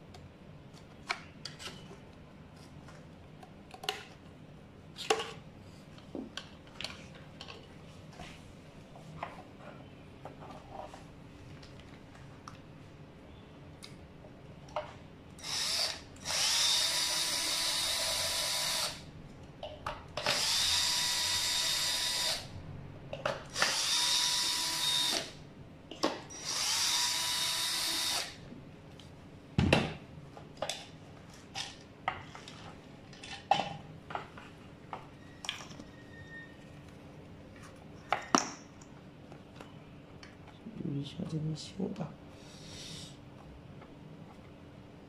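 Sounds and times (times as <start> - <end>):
cordless drill whirring: 15.4 - 19.0, 20.2 - 22.5, 23.5 - 25.4, 26.3 - 28.4.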